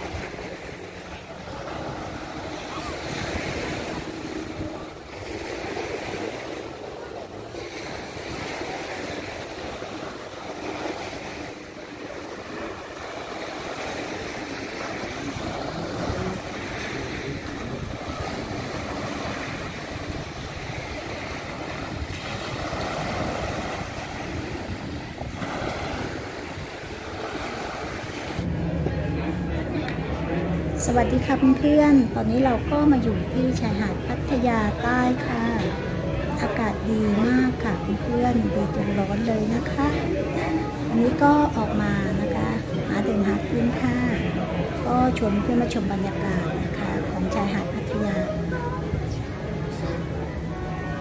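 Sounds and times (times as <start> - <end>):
waves washing on a beach: 0.0 - 51.0
wind on microphone: 14.1 - 29.9.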